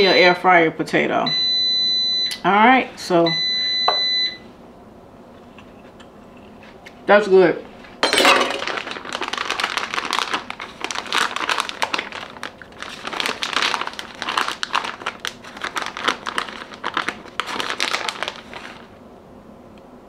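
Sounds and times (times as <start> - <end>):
plastic bag crinkling: 8.1 - 19.0.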